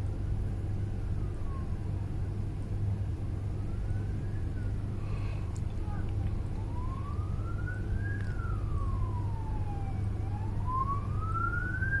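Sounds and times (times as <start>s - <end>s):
low rumble of vehicles: 0.0s - 12.0s
police siren wailing: 1.1s - 2.1s, 3.4s - 5.0s, 6.0s - 12.0s.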